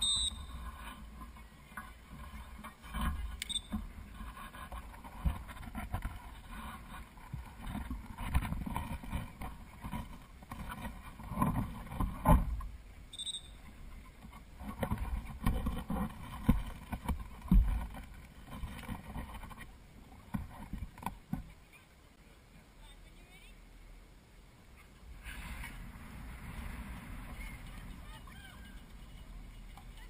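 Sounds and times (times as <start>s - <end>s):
faint high whistle: 0.0s - 0.6s, 13.1s - 13.6s.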